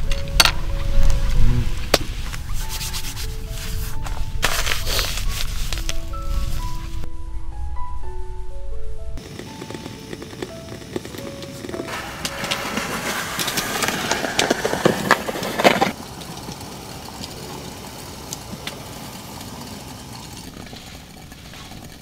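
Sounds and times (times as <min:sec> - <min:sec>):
gas burner hissing: 0:09.2 - 0:22.0
water boiling with pops: 0:09.2 - 0:22.0.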